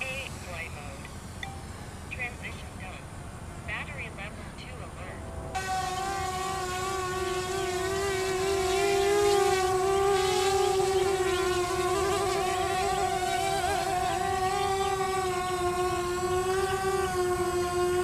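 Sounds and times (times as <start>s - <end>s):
electric motors whining: 5.5s - 18.0s.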